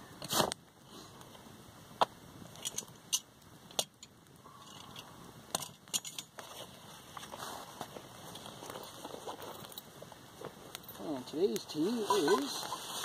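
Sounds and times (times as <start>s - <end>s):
camping gear clicks and knocks: 2.5s - 12.8s.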